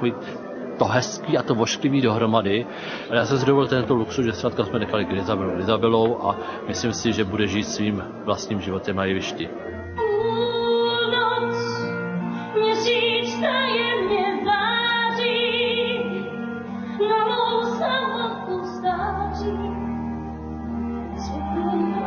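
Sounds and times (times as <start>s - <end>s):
sustained instrumental accompaniment: 0.0s - 22.0s
woman singing with vibrato: 10.0s - 20.1s, 20.9s - 22.0s.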